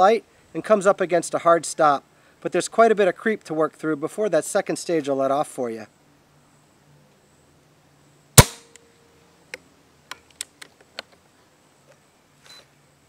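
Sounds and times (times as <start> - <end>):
air rifle shot crack: 8.4 - 8.8.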